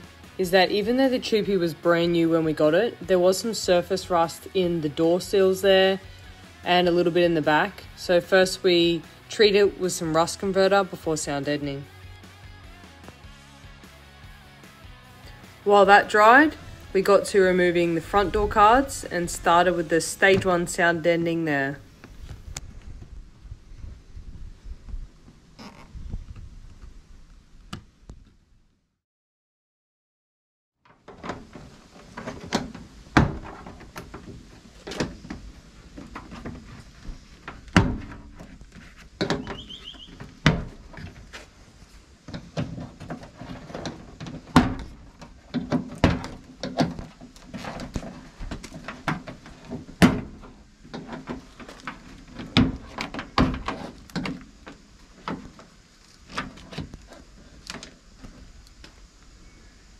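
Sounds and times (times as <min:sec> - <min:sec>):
rubbing and thudding: 0:30.9 - 0:58.6.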